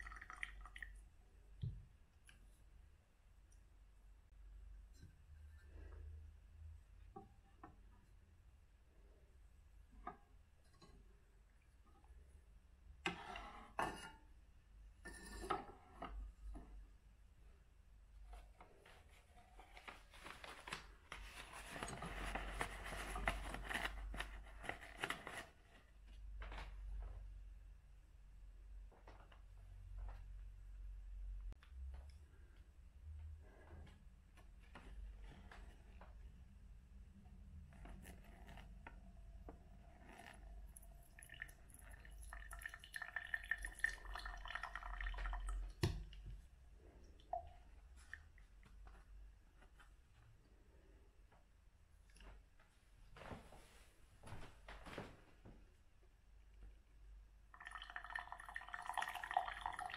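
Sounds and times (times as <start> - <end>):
water pouring onto paper filter: 0.0 - 1.0, 40.0 - 45.8, 57.5 - 59.9
paper filter crackling and rustling: 18.8 - 25.9.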